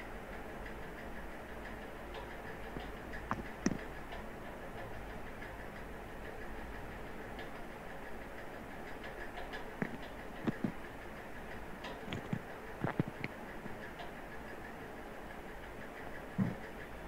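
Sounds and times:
low hiss of room noise: 0.0s - 17.0s
computer mouse clicking: 2.7s - 3.9s, 9.5s - 10.8s, 11.9s - 13.4s.

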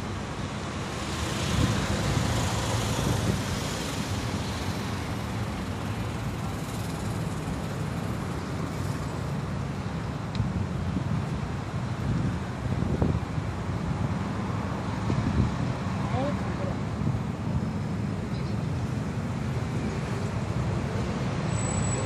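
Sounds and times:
wind buffeting microphone: 11.9s - 14.2s.

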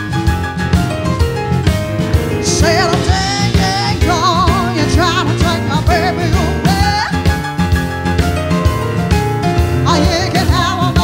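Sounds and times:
bass line: 0.0s - 11.0s
drum kit: 0.0s - 11.0s
keyboard: 0.0s - 11.0s
woman singing with vibrato: 2.4s - 7.3s, 9.8s - 11.0s.

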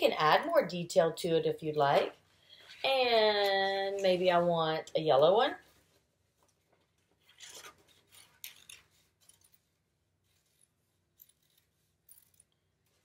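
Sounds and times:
paper rustling: 5.8s - 10.6s.

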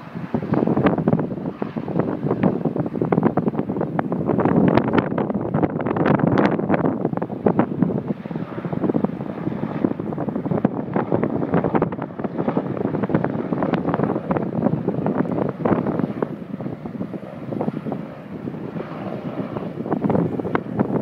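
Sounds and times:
distant helicopter flying: 0.0s - 21.0s
wind buffeting microphone: 0.0s - 21.0s.

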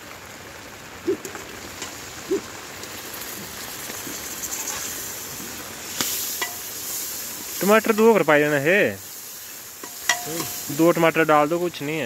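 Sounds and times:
rain hissing: 0.0s - 12.0s
tomatoes sizzling in oil: 0.0s - 12.0s
metal ladle clinking on pot: 6.4s - 6.6s, 9.8s - 10.7s.

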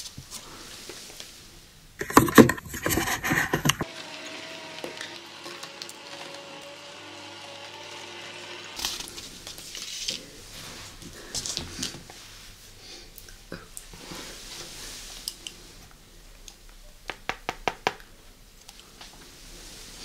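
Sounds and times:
juicer motor humming: 2.0s - 11.0s.

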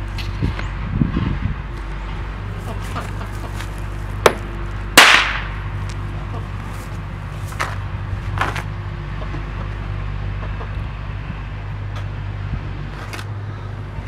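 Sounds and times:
sharp explosive crack: 5.0s - 5.6s.

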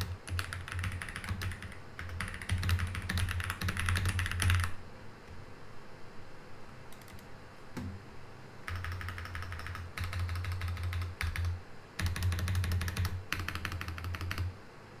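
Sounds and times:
mechanical keyboard typing: 0.0s - 4.8s, 6.9s - 7.3s, 8.7s - 14.5s.

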